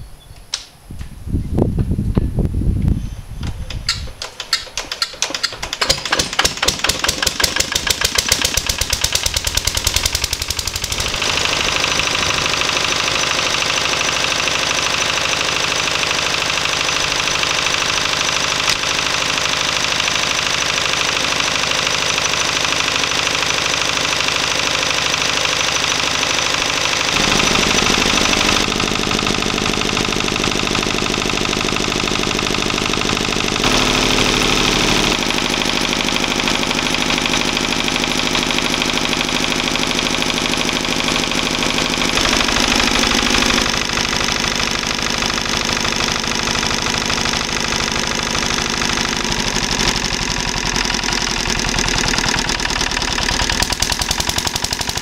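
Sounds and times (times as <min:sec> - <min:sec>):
diesel engine cranking knocks: 0:03.4 - 0:19.0, 0:40.2 - 0:55.0
diesel engine running: 0:04.7 - 0:55.0.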